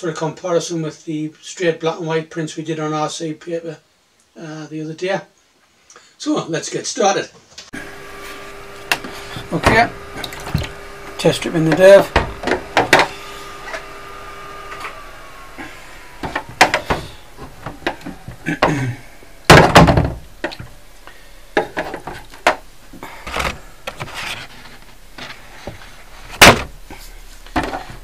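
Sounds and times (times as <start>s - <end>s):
developing tray knocks and clunks: 8.9s - 13.2s, 19.5s - 20.7s.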